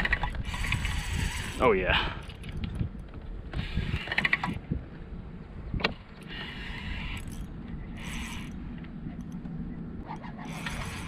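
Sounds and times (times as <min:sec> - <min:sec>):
fishing reel cranking: 0:00.1 - 0:02.8, 0:06.2 - 0:08.6, 0:10.2 - 0:11.0.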